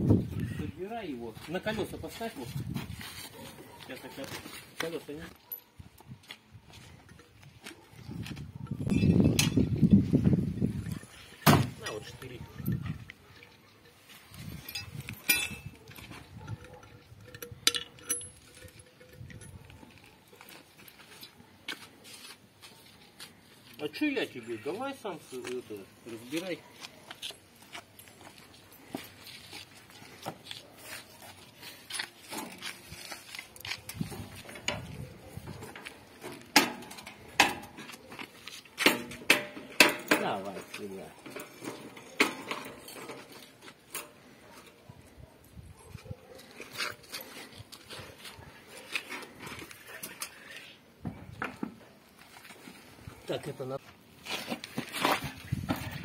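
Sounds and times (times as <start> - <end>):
metal parts clinking: 11.0 - 20.2
metal clicks and clanks: 14.6 - 20.5, 31.9 - 38.0, 38.8 - 44.2.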